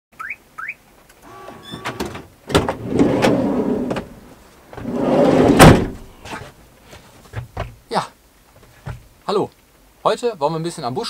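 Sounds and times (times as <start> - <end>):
door handle squeaks: 1.3 - 2.1
sliding door rolling rumble: 1.3 - 6.1.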